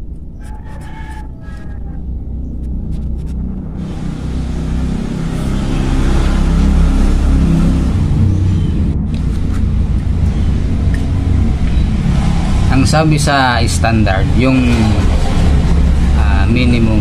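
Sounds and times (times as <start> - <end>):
vehicle engine running: 0.0 - 17.0.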